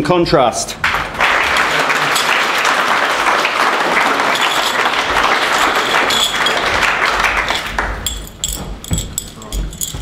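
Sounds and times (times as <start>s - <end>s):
crowd applauding: 0.8s - 8.2s.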